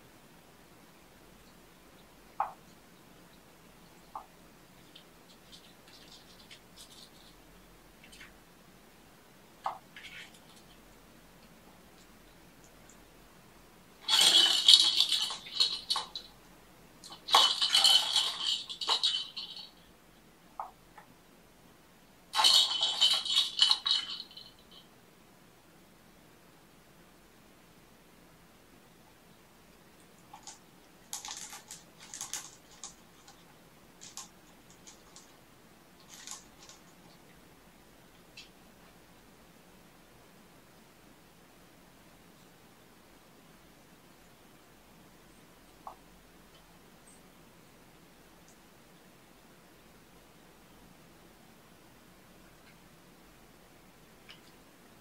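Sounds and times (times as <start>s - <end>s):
plastic balls rattling in track: 14.0s - 16.3s, 17.0s - 19.8s, 22.4s - 24.7s, 30.2s - 33.4s, 34.0s - 35.3s, 36.0s - 36.9s.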